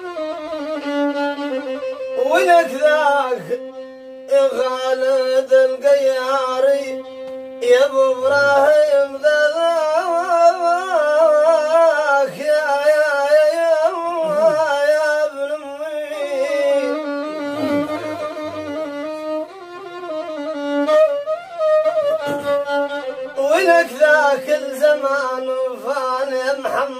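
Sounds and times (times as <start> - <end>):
violin sustaining long notes: 0.0 - 9.1, 14.1 - 26.3
man singing ornamented melody: 2.2 - 19.0, 22.2 - 26.9.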